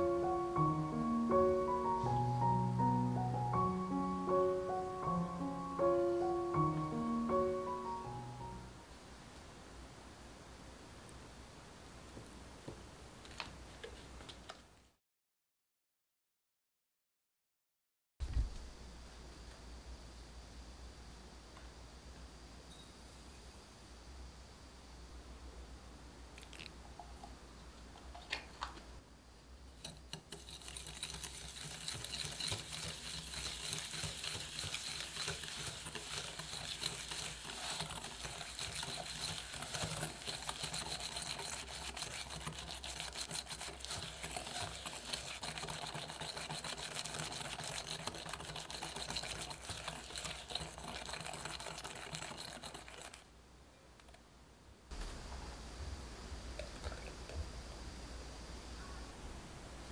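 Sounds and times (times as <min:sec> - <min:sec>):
wire whisk scraping glass bowl: 0:29.8 - 0:53.2.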